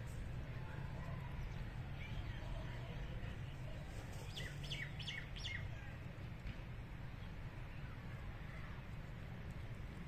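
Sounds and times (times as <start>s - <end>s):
small bird chirping: 4.2s - 5.7s.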